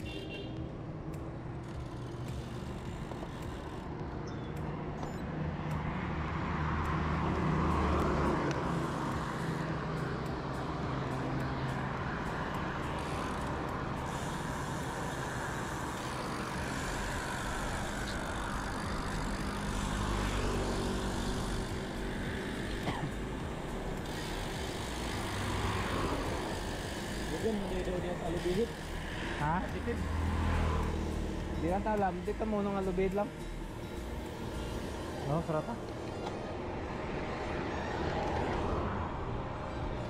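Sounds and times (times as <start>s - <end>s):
road noise: 0.0s - 40.0s
vehicle engine running: 8.4s - 36.1s.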